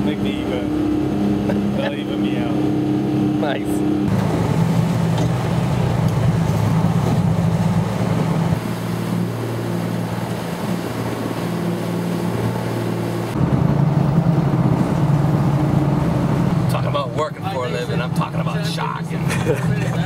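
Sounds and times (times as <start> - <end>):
boat engine droning: 0.0 - 20.0
wind and water hissing: 4.0 - 16.7.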